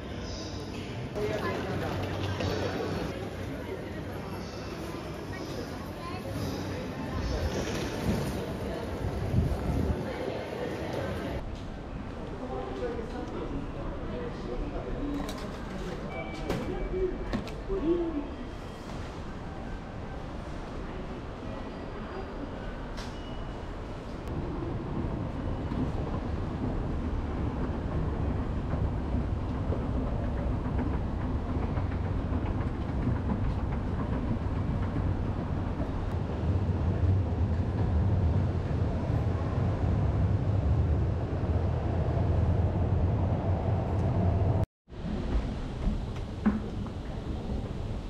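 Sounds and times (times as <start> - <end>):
railway station rumble: 0.0 - 48.0.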